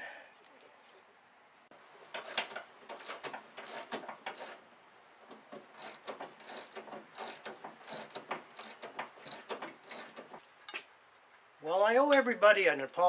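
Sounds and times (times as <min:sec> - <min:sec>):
socket ratchet clicking: 0:02.2 - 0:04.6, 0:05.7 - 0:10.3.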